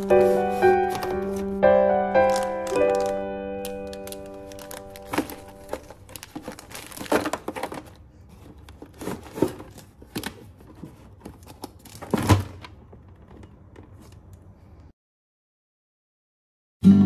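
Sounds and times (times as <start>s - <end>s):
plastic packets crinkling: 0.0s - 10.6s.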